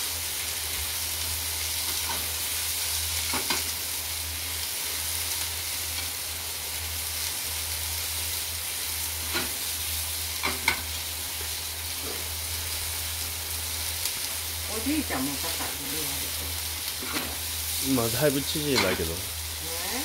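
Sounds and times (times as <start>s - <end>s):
food sizzling in frying pan: 0.0s - 20.0s.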